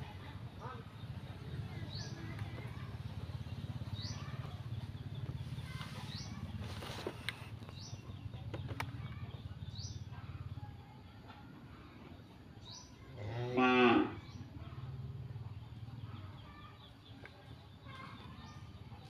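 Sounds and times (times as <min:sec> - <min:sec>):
cow mooing: 0:13.2 - 0:14.2.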